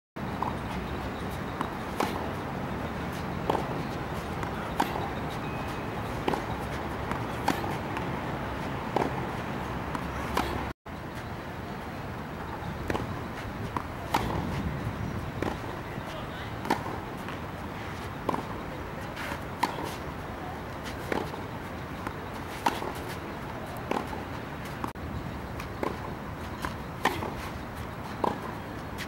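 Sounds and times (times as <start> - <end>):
steady background noise: 0.2 - 29.0
tennis racket hitting ball: 1.2 - 10.7, 13.7 - 14.7, 15.4 - 15.8, 16.6 - 17.4, 21.0 - 21.4, 22.0 - 23.2, 23.8 - 24.2, 25.7 - 27.6, 28.2 - 28.6.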